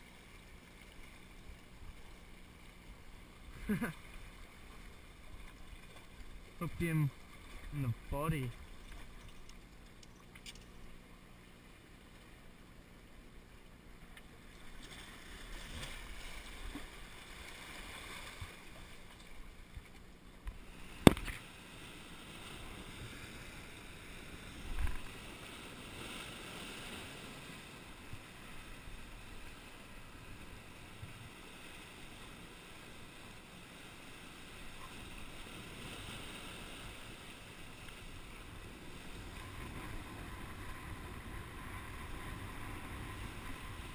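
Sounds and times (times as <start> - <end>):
surf washing over rocks: 3.4 - 9.2, 20.6 - 43.9.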